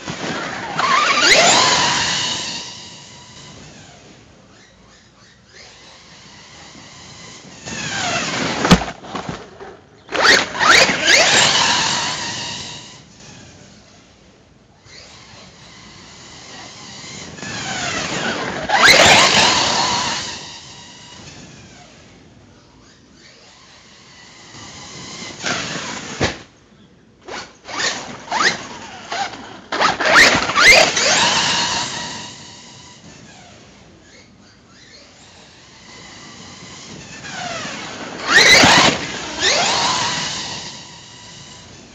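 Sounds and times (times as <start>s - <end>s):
electric motor whining: 0.0s - 13.9s, 14.8s - 26.5s, 27.5s - 41.9s.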